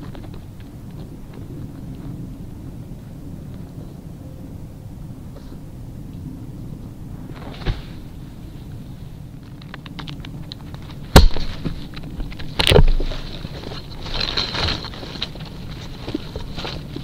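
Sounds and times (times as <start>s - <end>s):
scratchy rustling: 7.3s - 17.0s
light ticks and scrapes: 9.4s - 17.0s.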